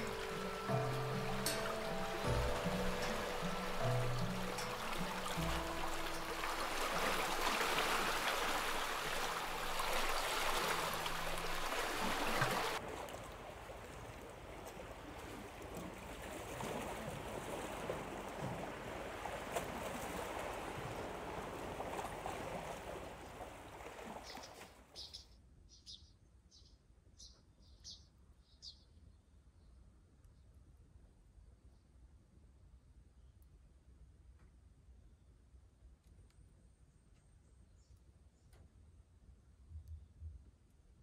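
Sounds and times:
sea water washing against shore: 0.0s - 24.8s.

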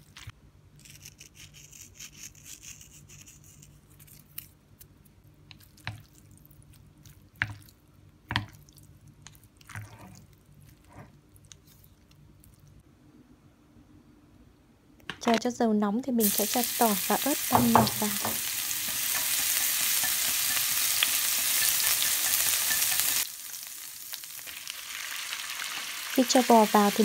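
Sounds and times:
salt sprinkling hiss: 16.2s - 27.0s.

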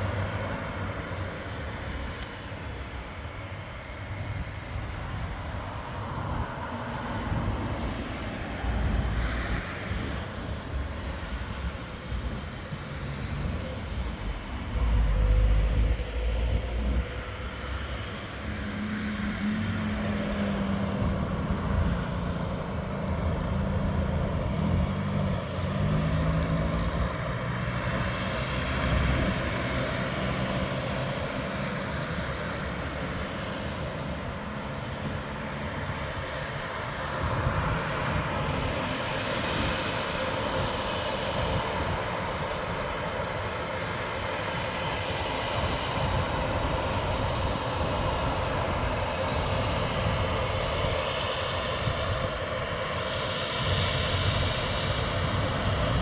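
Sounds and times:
distant turboprop engines droning: 0.0s - 56.0s
low rumble: 8.6s - 17.4s.

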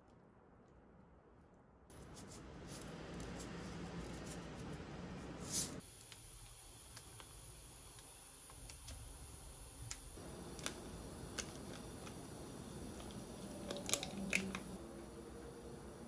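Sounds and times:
plastic packet crinkling: 10.4s - 14.8s.

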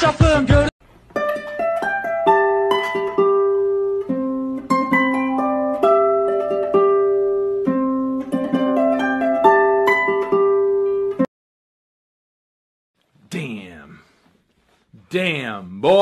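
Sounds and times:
plucked string melody: 1.1s - 11.3s.

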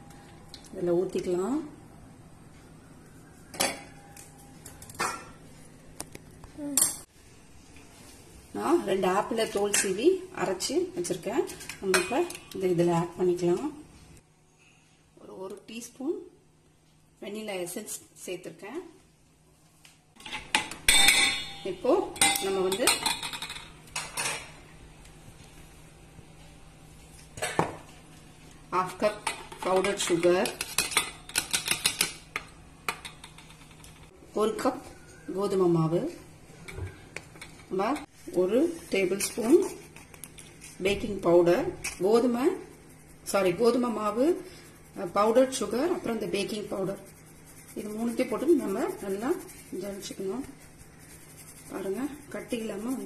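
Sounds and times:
glass cup and metal bowl clinking: 20.9s - 23.8s.

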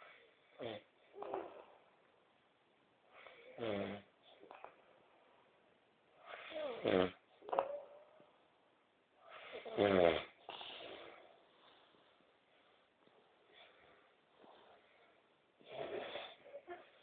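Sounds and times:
short snort: 0.0s - 1.7s, 3.2s - 4.8s, 6.2s - 7.7s, 9.3s - 11.9s, 13.5s - 17.0s.

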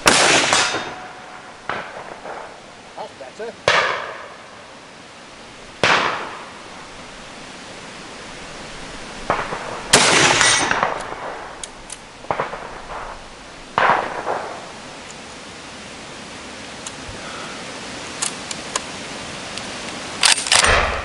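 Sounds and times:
rifle shots echoing: 0.0s - 2.6s, 3.6s - 4.6s, 5.8s - 7.1s, 9.1s - 14.9s, 20.2s - 21.0s.

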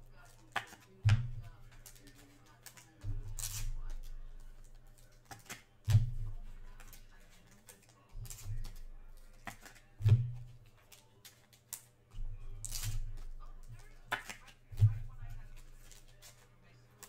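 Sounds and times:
soft card rustling: 0.0s - 17.0s
cards tapping on table: 0.3s - 7.6s, 8.2s - 10.8s, 12.2s - 16.4s.

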